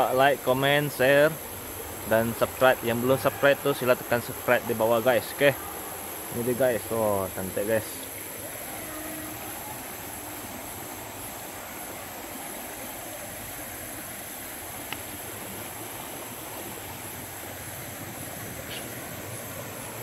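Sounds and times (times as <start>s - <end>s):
river water flowing: 0.0s - 20.0s
faint click: 14.8s - 15.1s.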